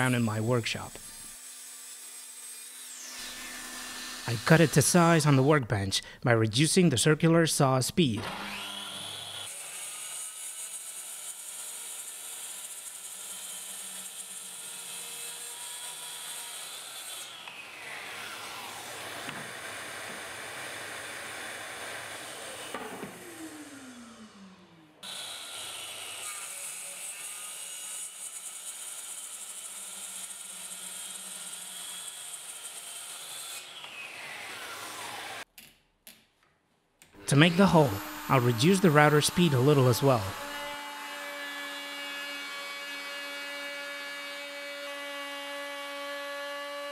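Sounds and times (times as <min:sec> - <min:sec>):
circular saw cutting: 0:00.0 - 0:05.6, 0:08.2 - 0:35.4, 0:37.2 - 0:46.0
saw motor winding down: 0:22.7 - 0:25.0, 0:37.2 - 0:40.8.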